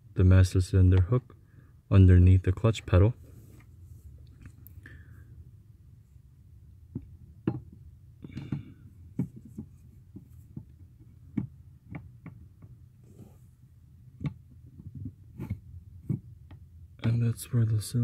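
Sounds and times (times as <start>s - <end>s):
faint low hum: 0.0s - 18.0s
metal clicks and knocks: 6.9s - 12.8s.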